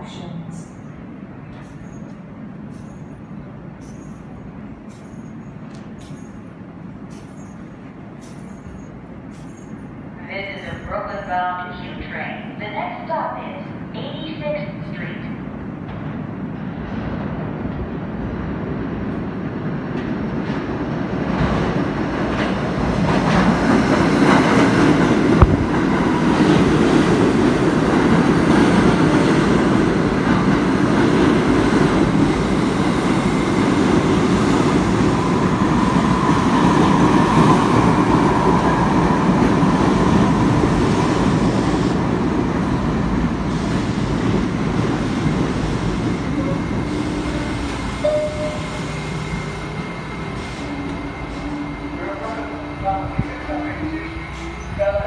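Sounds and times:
train wheels rumbling on rails: 0:00.0 - 0:11.3, 0:15.5 - 0:55.0.

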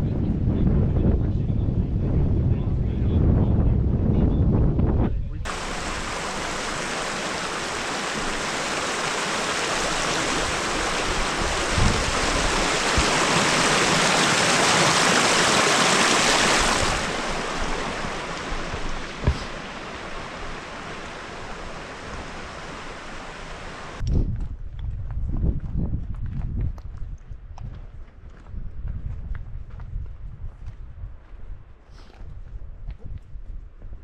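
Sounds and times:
creek rushing over rocks: 0:05.5 - 0:24.0
dull thumps: 0:17.6 - 0:20.2.

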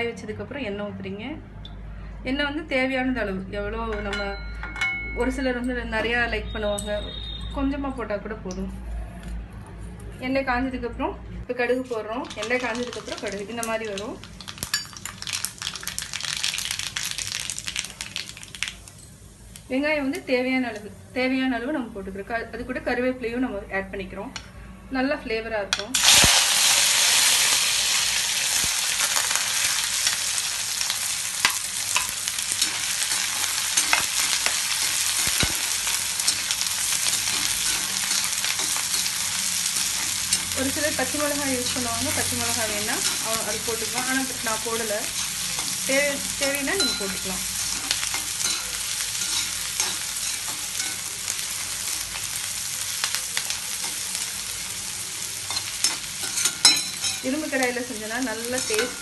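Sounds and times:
onions sizzling in hot oil: 0:12.2 - 0:21.9, 0:25.9 - 0:59.0
metal spoon scraping a pan: 0:31.4 - 0:40.6, 0:42.7 - 0:46.0, 0:46.7 - 0:51.1, 0:55.4 - 0:57.5, 0:58.4 - 0:59.0.

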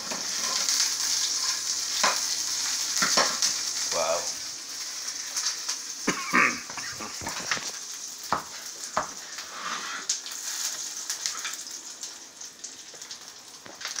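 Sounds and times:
steady high hiss: 0:00.0 - 0:08.3.

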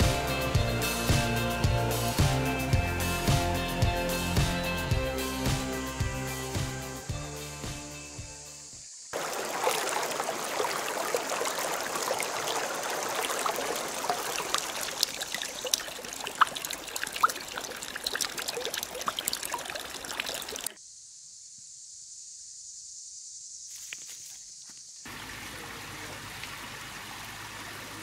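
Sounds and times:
stream trickling over stones: 0:09.2 - 0:20.8, 0:25.1 - 0:28.0.

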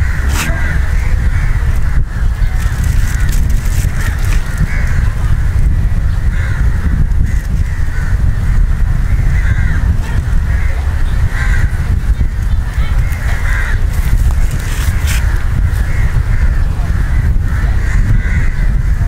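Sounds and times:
bird calling: 0:00.0 - 0:02.4
wind rumble on microphone: 0:00.0 - 0:19.0.

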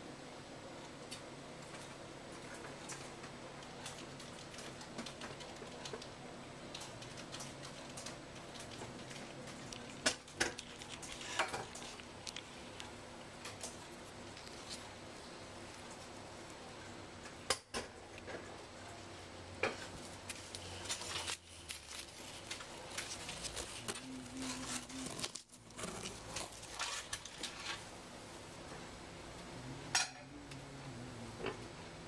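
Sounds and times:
leaves rustling and scraping: 0:19.8 - 0:28.0.

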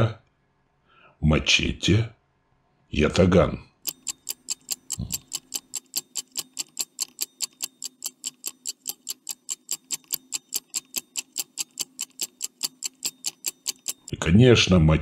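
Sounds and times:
stopwatch ticking: 0:03.8 - 0:14.2.

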